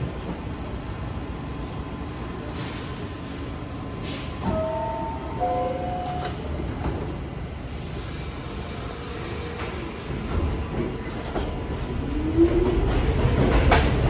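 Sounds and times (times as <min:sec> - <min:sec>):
subway train low rumble: 0:00.0 - 0:14.0
two-note door chime: 0:04.5 - 0:06.5.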